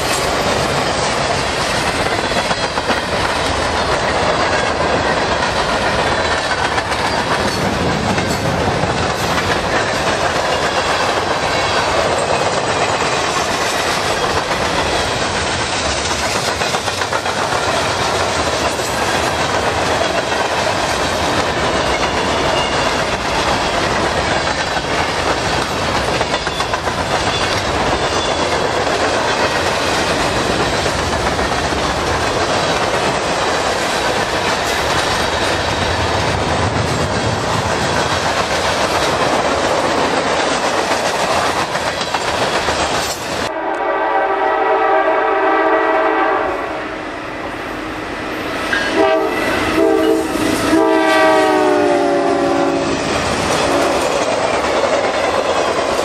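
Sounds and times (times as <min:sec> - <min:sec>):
wheels clacking over rail joints: 0:00.0 - 0:43.5
freight train rolling by: 0:00.0 - 0:56.0
locomotive air horn blast: 0:43.5 - 0:47.0, 0:48.8 - 0:53.0.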